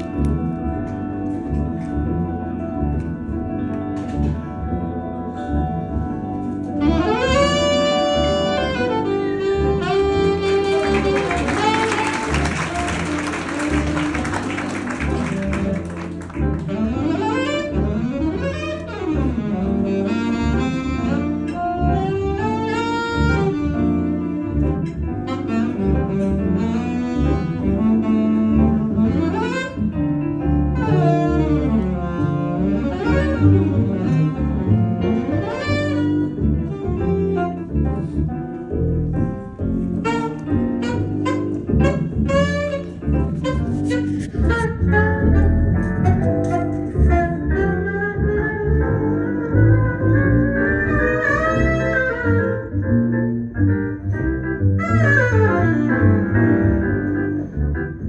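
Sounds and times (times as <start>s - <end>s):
upright double bass: 0.0s - 58.0s
saxophone playing fast runs: 6.8s - 24.5s, 25.2s - 38.2s, 39.8s - 52.8s, 54.8s - 57.2s.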